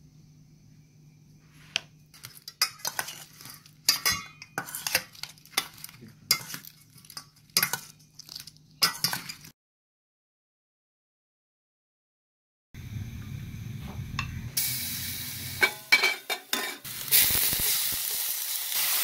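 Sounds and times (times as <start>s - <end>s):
metal spoon scraping steel bowl: 2.2s - 9.5s.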